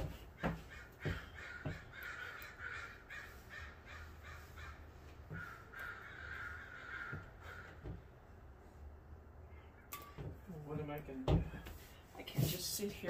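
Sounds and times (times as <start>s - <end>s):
crows cawing: 0.0s - 8.2s.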